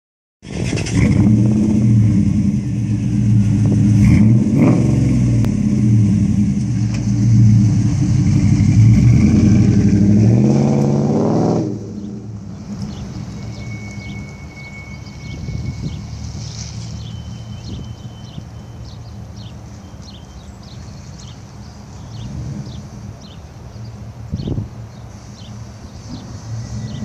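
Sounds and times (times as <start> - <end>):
engine revving: 0.4 - 14.2.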